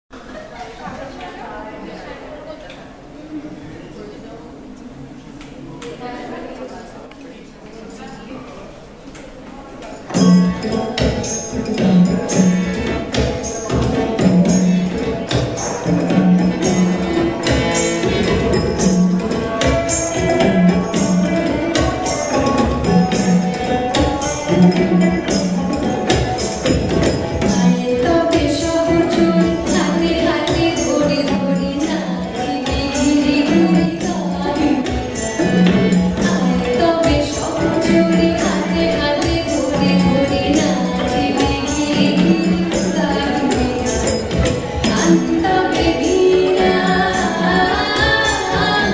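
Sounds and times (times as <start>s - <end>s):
dance music with percussion beat: 10.1s - 48.9s.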